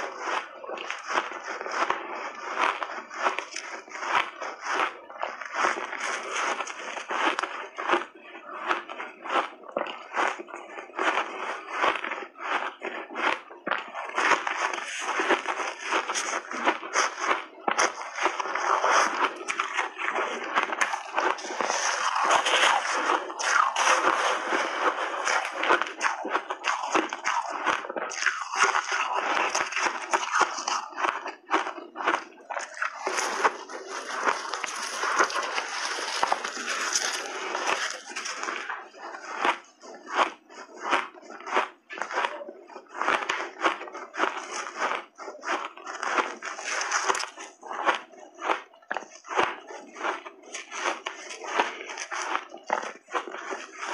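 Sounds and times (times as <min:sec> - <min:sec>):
crunching and chewing ice: 0:00.0 - 0:53.9.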